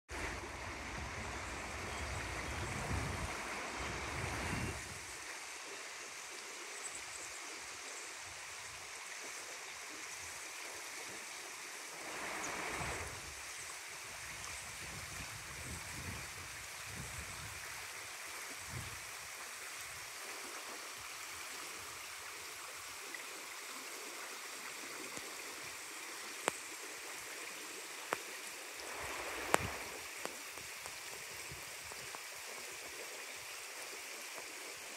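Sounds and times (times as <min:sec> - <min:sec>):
stream rushing over rocks: 0:00.1 - 0:34.9.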